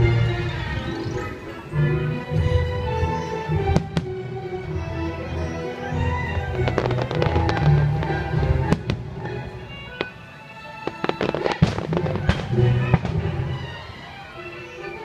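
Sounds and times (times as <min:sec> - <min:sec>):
fireworks bangs and crackles: 0:03.6 - 0:04.4, 0:06.4 - 0:10.2, 0:10.8 - 0:13.8.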